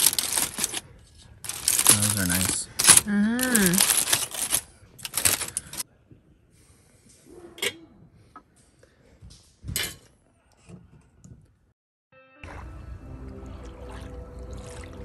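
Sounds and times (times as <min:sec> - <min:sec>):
foil packet rustling: 0:00.0 - 0:00.8, 0:01.4 - 0:05.8
cutlery and plates clinking: 0:09.7 - 0:10.1.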